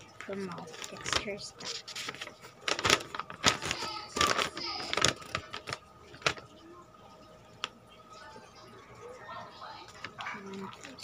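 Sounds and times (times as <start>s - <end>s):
paper crinkling and rustling: 0.1s - 6.5s, 9.9s - 11.0s.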